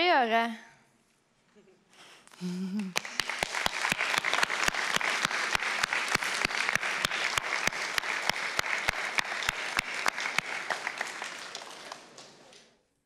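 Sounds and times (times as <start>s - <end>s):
sharp claps close to microphone: 2.3s - 12.8s
audience applauding: 2.4s - 12.8s.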